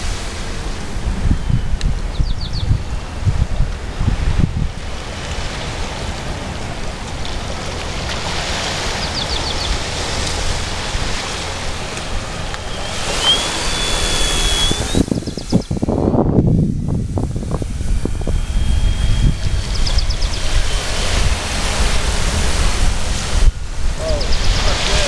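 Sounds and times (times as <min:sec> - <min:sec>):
light aircraft engine drone: 0:00.0 - 0:25.0
wind buffeting microphone: 0:00.0 - 0:25.0.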